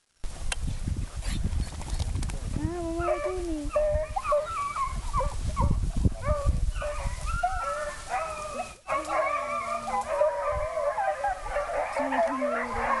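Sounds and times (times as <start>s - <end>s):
pack of hounds baying: 3.0s - 13.0s.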